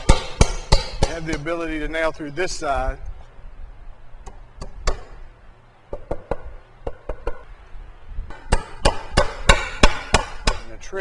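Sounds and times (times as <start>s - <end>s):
hammer driving a nail into wood: 0.0s - 1.4s, 4.3s - 5.2s, 8.3s - 10.7s.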